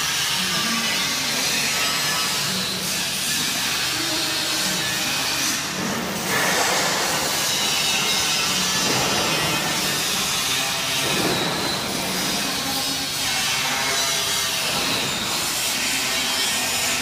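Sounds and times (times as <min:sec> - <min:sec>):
machine scraping hiss: 0:03.0 - 0:17.0.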